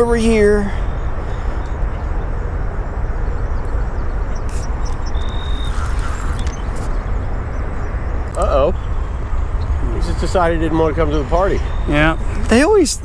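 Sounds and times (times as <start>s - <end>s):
low rumbling noise: 0.0s - 13.0s.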